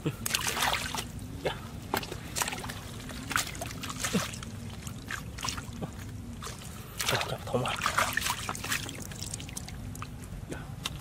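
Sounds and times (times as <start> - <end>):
hands sloshing through muddy water: 0.2 - 1.1, 1.9 - 10.2
short sharp splashes: 6.4 - 9.7.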